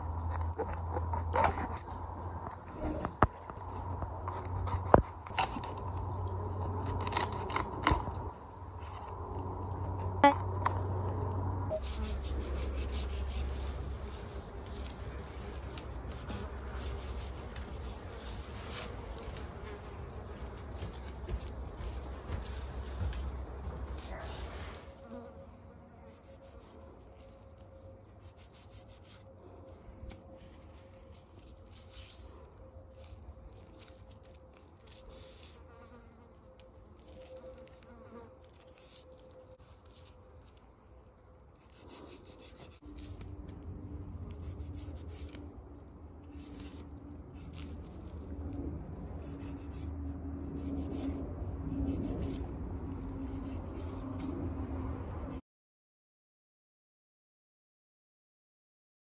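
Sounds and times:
knife scraping through fish: 11.7s - 19.0s, 28.2s - 29.3s, 41.6s - 43.3s, 44.3s - 45.4s, 49.2s - 52.5s.

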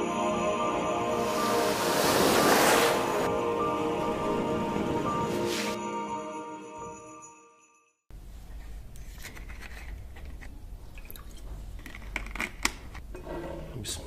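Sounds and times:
intro music: 0.0s - 7.0s
plastic bottle crinkling and clicking: 9.0s - 13.0s.

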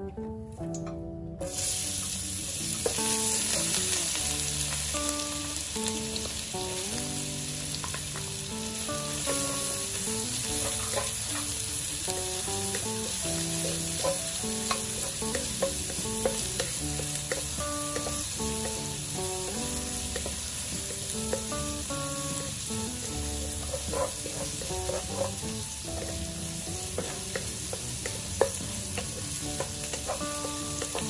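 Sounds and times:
food sizzling in hot oil: 1.4s - 31.0s
wooden spatula scraping wok: 23.0s - 31.0s.

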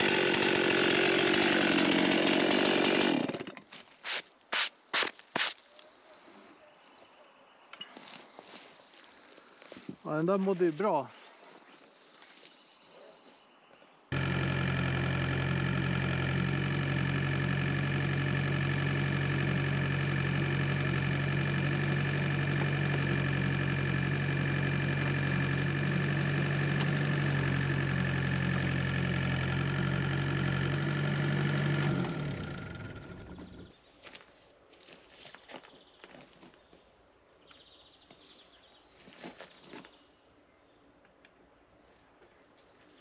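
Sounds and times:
engine running steadily: 14.1s - 33.7s.

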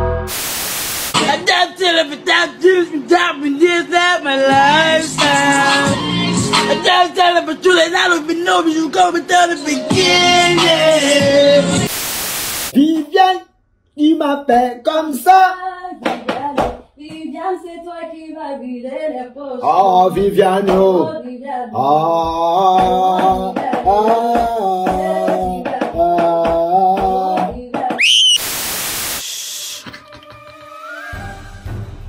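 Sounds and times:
burst of hissing noise: 0.3s - 1.3s, 11.9s - 12.8s, 28.0s - 29.8s
person singing: 1.2s - 11.9s, 19.4s - 28.1s
steady beat: 22.3s - 27.6s
rising whistle-like glide: 28.0s - 28.4s.

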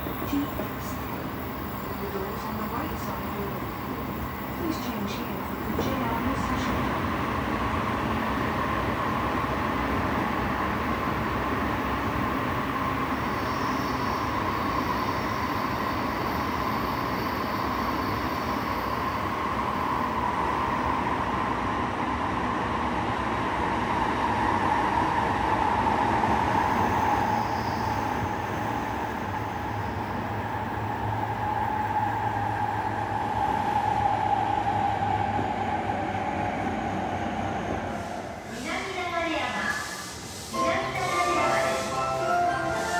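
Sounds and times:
train running noise: 0.0s - 42.9s.

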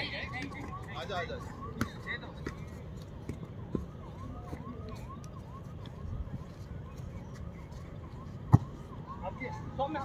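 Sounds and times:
electronic siren yelping: 3.8s - 10.0s.

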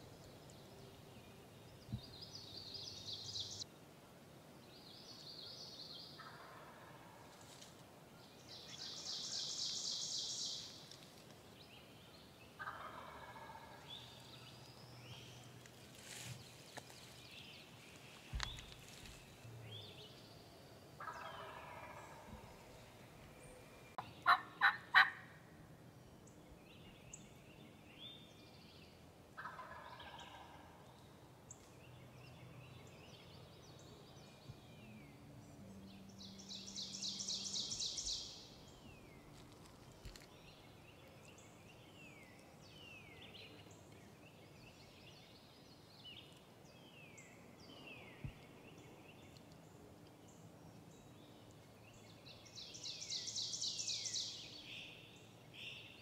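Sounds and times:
small birds chirping: 0.0s - 3.6s, 8.3s - 24.9s, 29.6s - 56.0s
turkey gobbling: 12.6s - 13.8s, 21.0s - 22.3s, 24.2s - 25.2s, 29.4s - 30.6s.

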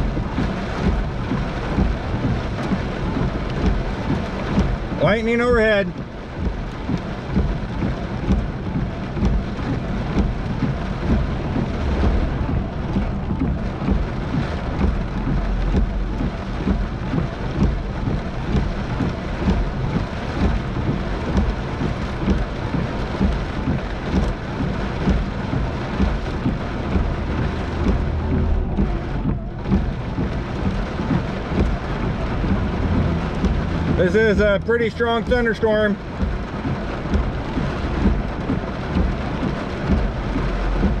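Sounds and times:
heavy rain on car windshield: 0.0s - 41.0s.

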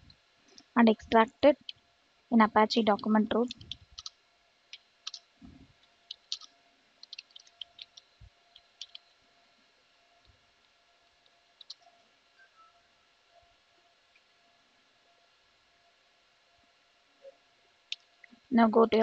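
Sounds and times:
keyboard typing clicks: 4.7s - 5.2s, 6.1s - 9.1s.

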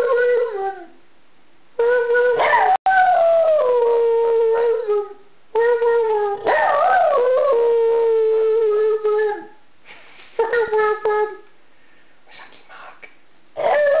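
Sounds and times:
dog howling: 1.8s - 9.6s, 13.6s - 14.0s.

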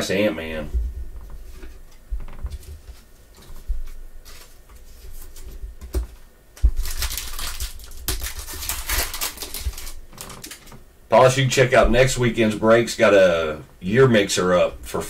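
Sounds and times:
trading cards rustling: 2.5s - 10.8s
plastic wrapper tearing: 6.6s - 10.8s.

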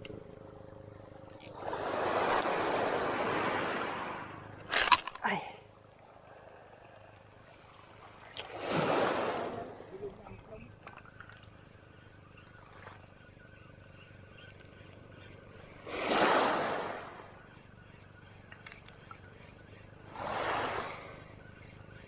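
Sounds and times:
waves washing up pebble beach: 8.5s - 9.8s, 15.9s - 17.1s.

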